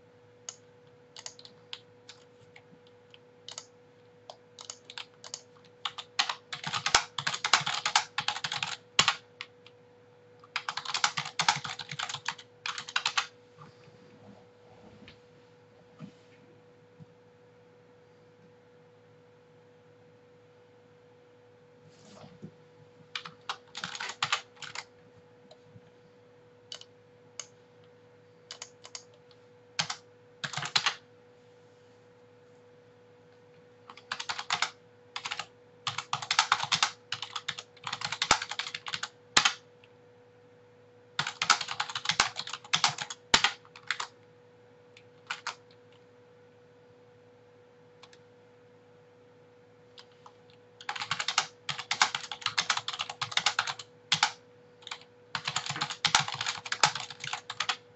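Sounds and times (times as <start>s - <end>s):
faint steady hum: 0.0s - 57.9s
typing on computer keyboard: 1.2s - 9.8s, 10.4s - 13.3s, 23.2s - 24.9s, 26.7s - 27.5s, 28.5s - 31.0s, 33.9s - 39.6s, 41.2s - 44.1s, 45.2s - 45.7s, 49.9s - 57.8s.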